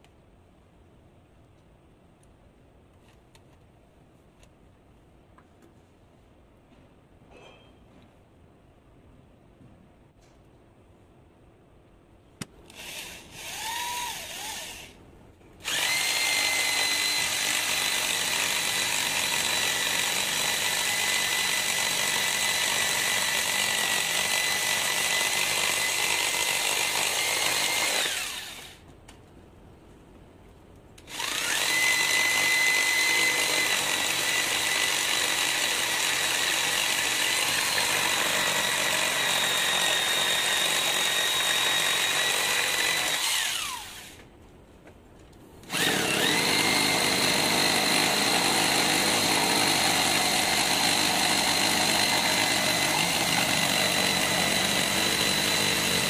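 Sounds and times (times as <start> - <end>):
electric drill saw cutting wood: 12.7 - 15.0, 15.6 - 28.8, 31.1 - 44.2, 45.7 - 56.0.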